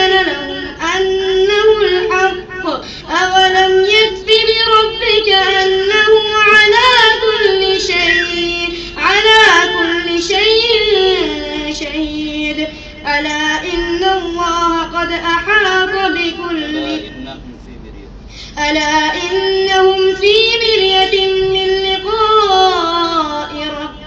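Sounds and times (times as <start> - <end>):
man chanting recitation: 15.0 - 18.2.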